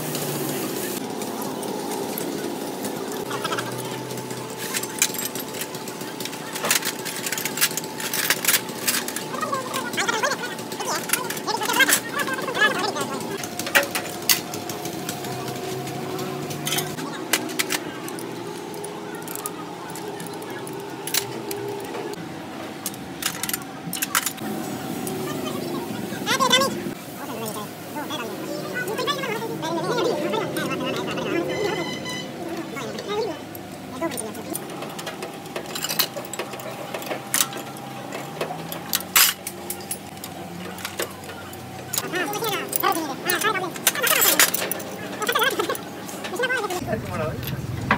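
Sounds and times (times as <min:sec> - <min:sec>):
hand tools clanking on metal: 0:03.3 - 0:22.2, 0:31.5 - 0:46.8.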